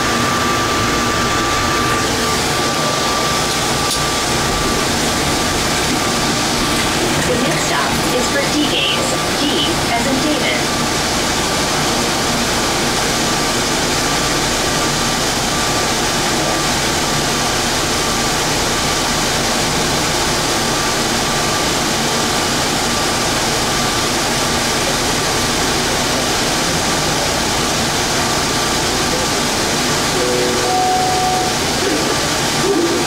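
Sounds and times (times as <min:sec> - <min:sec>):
faint high tone: 0:30.2 - 0:32.1.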